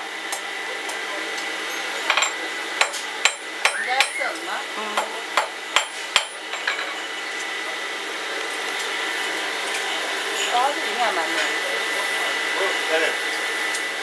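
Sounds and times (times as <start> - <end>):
steady background hum: 0.0 - 14.0
hammer striking metal on anvil: 2.1 - 7.0.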